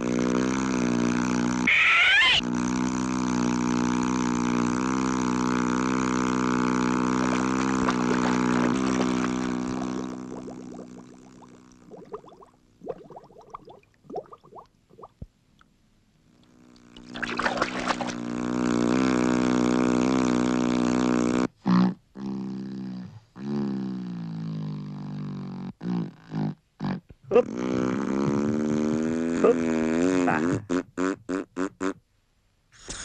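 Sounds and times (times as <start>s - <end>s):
low buzzing cartoon drone: 0.0s - 11.7s.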